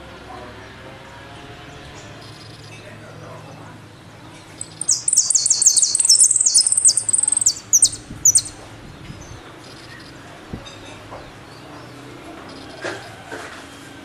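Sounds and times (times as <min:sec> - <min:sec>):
finch singing: 0:04.6 - 0:08.6.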